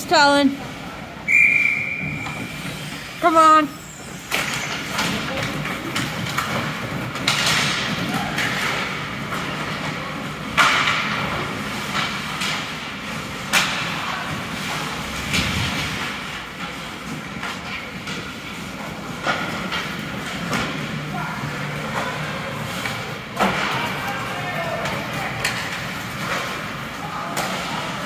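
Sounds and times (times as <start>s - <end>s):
skates scraping on ice: 1.8s - 28.0s
puck and sticks cracking on boards: 4.2s - 20.9s.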